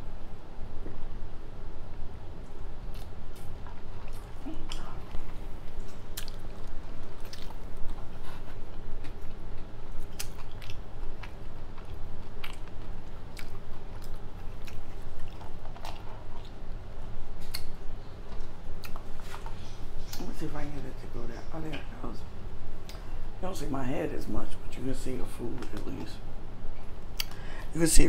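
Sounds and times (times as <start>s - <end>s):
steady low hum: 0.0s - 28.0s
chewing mouth sounds: 2.9s - 16.6s, 17.4s - 20.2s.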